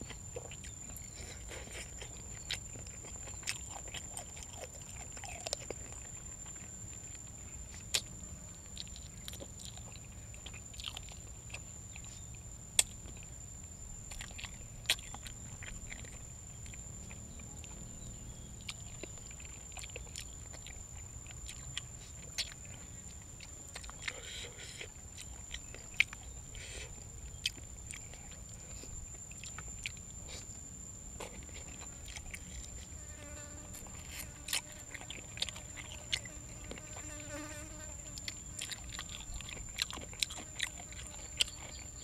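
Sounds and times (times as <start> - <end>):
person chewing: 0.0 - 13.4, 14.0 - 42.0.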